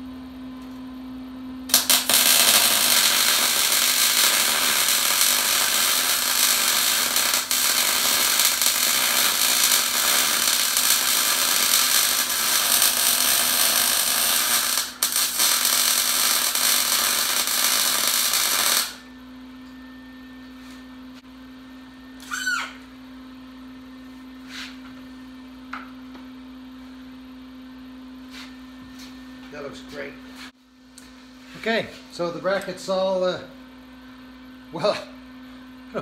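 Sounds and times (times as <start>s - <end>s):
welding arc crackling and sizzling: 1.7s - 19.0s.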